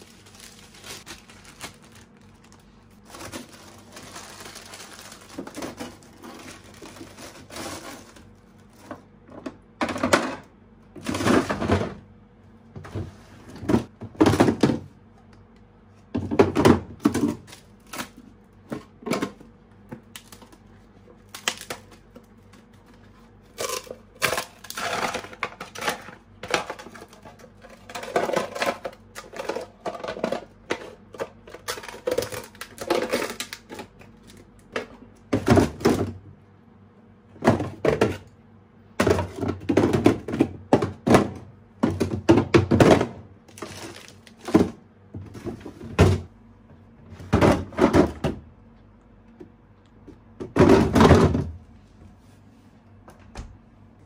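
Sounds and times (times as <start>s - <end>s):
plastic containers clattering: 0.0s - 12.1s, 12.8s - 14.9s, 16.1s - 20.6s, 23.5s - 36.2s, 37.3s - 38.3s, 39.0s - 46.3s, 47.1s - 48.4s, 50.4s - 51.6s.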